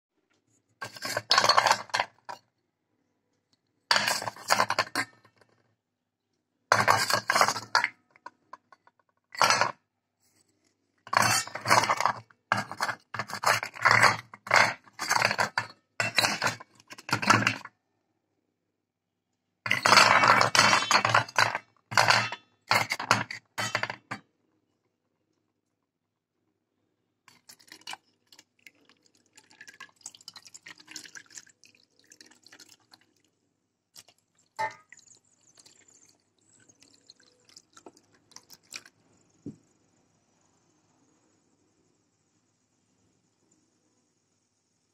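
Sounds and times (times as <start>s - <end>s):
clay lamps clinking: 3.9s - 5.4s, 11.1s - 17.7s, 19.7s - 24.2s, 34.6s - 34.9s
water pouring into bowl: 27.3s - 33.3s, 34.0s - 39.0s.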